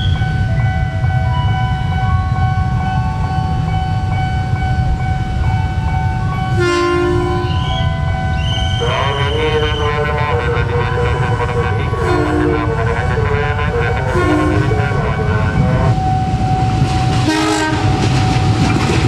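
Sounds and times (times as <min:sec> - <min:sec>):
electric train rumbling: 0:00.0 - 0:19.0
train horn: 0:06.5 - 0:15.9, 0:17.2 - 0:18.0.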